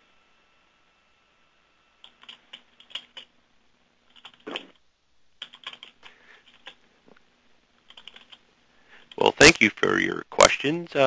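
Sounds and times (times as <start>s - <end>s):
computer keyboard typing: 2.0s - 3.3s, 4.1s - 4.8s, 5.4s - 6.8s, 7.8s - 8.4s.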